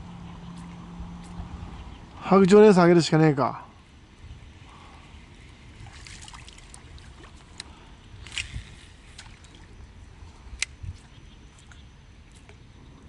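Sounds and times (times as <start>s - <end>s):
low wind rumble: 0.0s - 13.0s
water lapping at boat hull: 4.6s - 13.0s.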